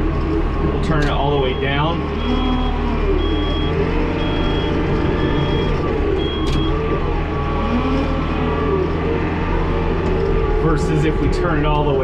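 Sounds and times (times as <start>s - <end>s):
diesel engine running: 0.0s - 12.0s
reverse alarm beeping: 0.9s - 7.8s.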